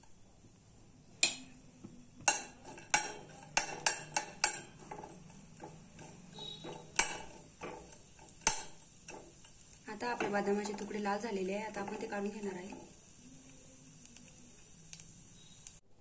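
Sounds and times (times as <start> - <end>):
steel spoon knocking on steel pan: 2.2 - 11.0.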